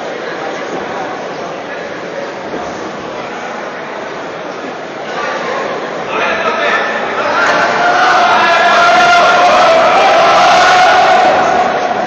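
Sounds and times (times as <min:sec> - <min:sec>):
spectators shouting and cheering: 0:06.1 - 0:12.0.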